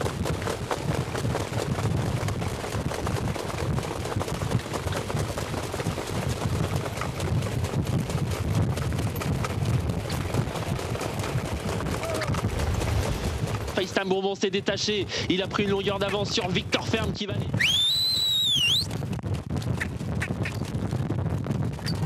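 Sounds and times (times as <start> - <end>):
racing sulky rattling: 0.0 - 14.9
low wind rumble: 0.0 - 22.0
trotting horse hooves: 0.0 - 22.0.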